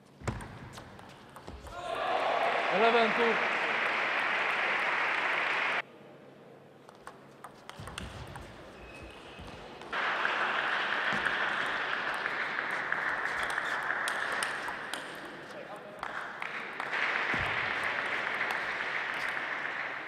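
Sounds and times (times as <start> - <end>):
crowd applauding: 1.8 - 5.8, 9.9 - 20.0.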